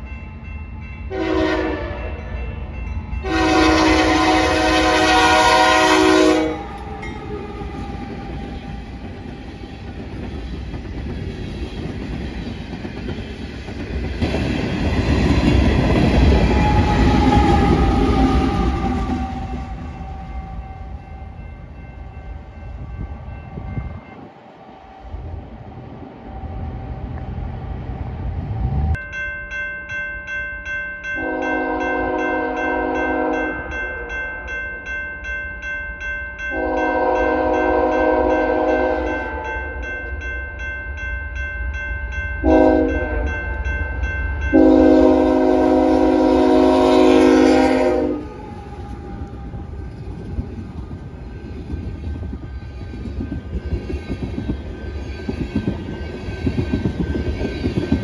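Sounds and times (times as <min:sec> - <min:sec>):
crossing bell ringing: 0:00.0 - 0:10.8, 0:14.8 - 0:24.5, 0:28.9 - 0:58.0
freight train rumbling: 0:00.0 - 0:29.3, 0:36.4 - 0:58.0
locomotive air horn blasts: 0:01.1 - 0:02.2, 0:03.2 - 0:08.2, 0:31.2 - 0:33.6, 0:36.5 - 0:39.4, 0:42.4 - 0:43.4, 0:44.5 - 0:49.4.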